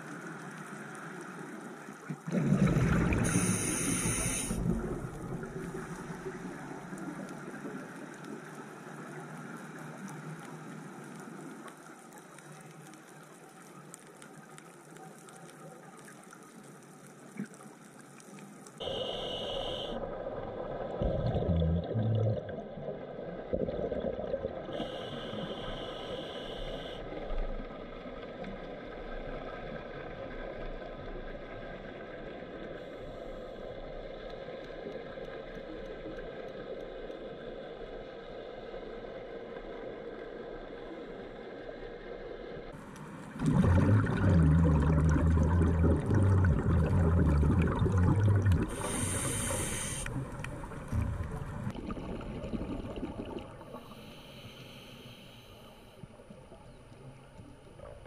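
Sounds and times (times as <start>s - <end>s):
underwater water noise: 0.0s - 58.0s
loud bubbling burst: 43.4s - 48.8s.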